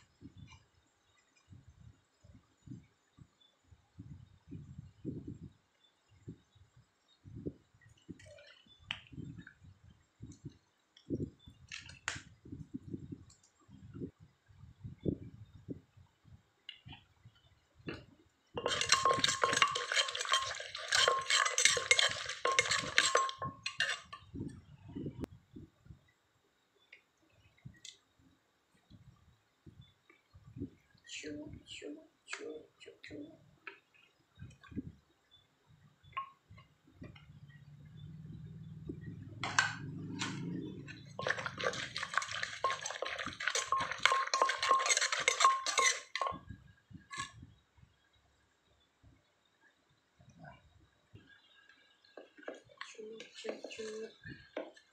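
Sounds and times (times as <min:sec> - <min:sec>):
metal spoon scraping clay mortar: 0:18.6 - 0:24.3, 0:39.4 - 0:46.4
low hum: 0:35.7 - 0:44.8.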